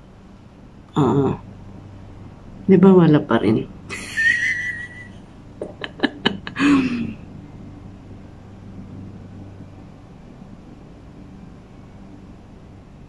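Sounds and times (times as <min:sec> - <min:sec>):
faint room hum: 0:00.0 - 0:13.0
low vocal hum: 0:04.7 - 0:07.3.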